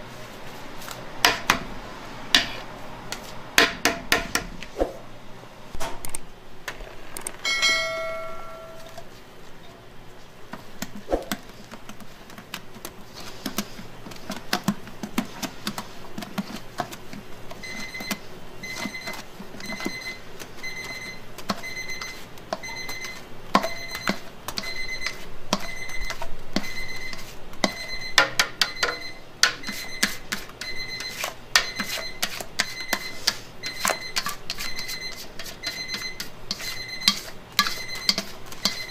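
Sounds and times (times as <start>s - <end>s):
utensil scraping metal bowl: 13.1s - 28.0s, 28.6s - 38.9s.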